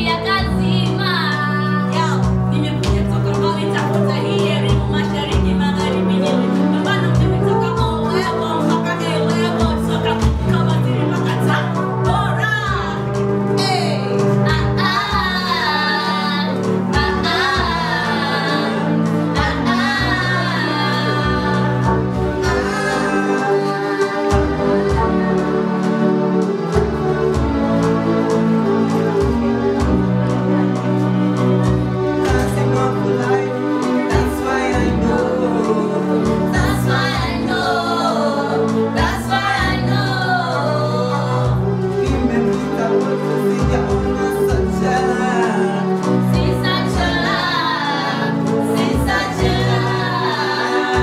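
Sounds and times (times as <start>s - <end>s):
woman and man singing together: 14.5s - 25.4s, 32.3s - 51.0s.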